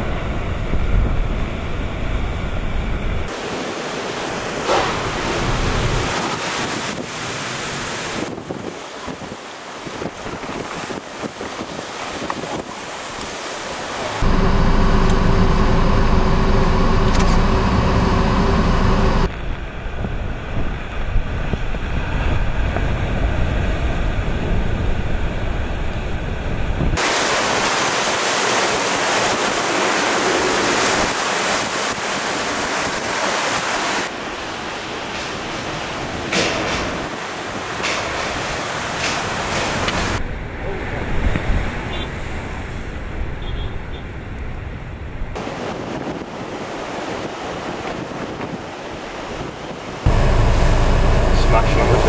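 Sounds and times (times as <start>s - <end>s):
storm surf crashing: 0.0s - 43.4s, 45.0s - 52.0s
wind buffeting microphone: 4.9s - 13.0s, 18.8s - 27.0s, 44.2s - 52.0s.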